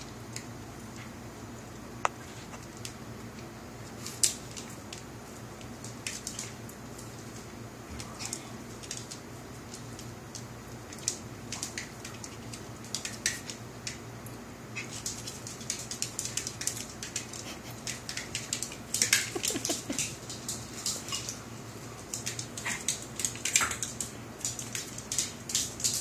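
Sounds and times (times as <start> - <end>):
puppy claws clicking on tile: 14.8 - 21.4, 22.0 - 26.0.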